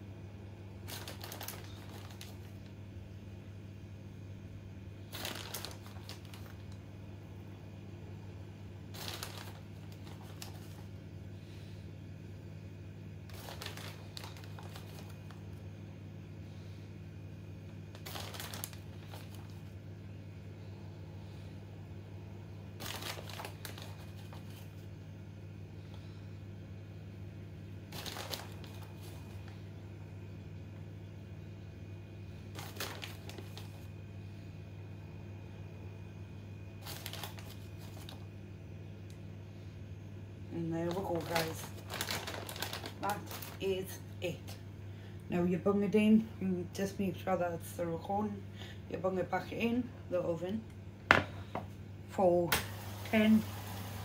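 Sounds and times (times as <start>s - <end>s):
steady low hum: 0.0s - 54.0s
plastic bag crinkling: 0.8s - 2.7s, 5.1s - 6.8s, 8.9s - 11.0s, 13.3s - 15.6s, 17.9s - 19.8s, 22.8s - 24.9s, 27.9s - 29.6s, 32.5s - 33.9s, 36.8s - 38.3s, 40.6s - 44.2s.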